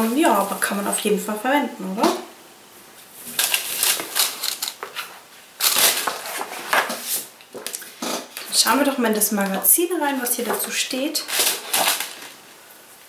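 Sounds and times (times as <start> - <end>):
cloth rustling and crinkling: 3.0 - 8.7, 9.6 - 12.6.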